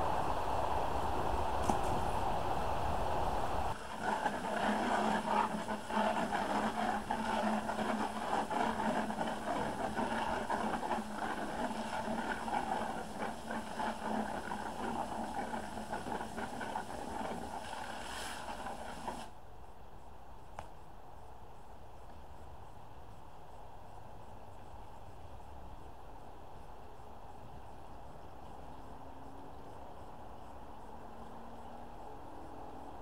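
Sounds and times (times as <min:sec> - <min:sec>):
water pouring into plastic bucket: 0:03.8 - 0:19.3.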